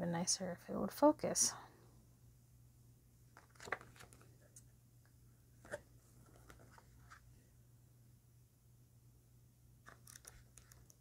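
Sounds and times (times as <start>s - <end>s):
paper pages flicking: 3.4s - 4.3s, 9.9s - 11.0s.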